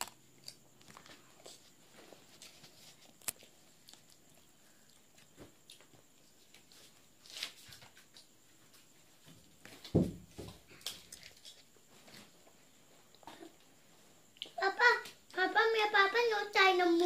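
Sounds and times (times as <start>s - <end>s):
faint eating clicks and rustles: 0.0s - 9.8s, 10.6s - 15.4s
thump: 9.8s - 10.6s.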